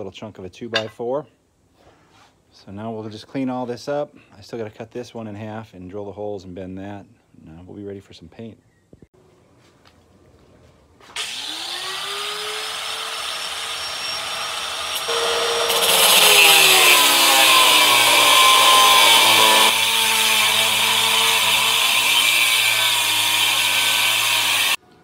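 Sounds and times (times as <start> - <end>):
angle grinder cutting metal bar: 11.2 - 24.8.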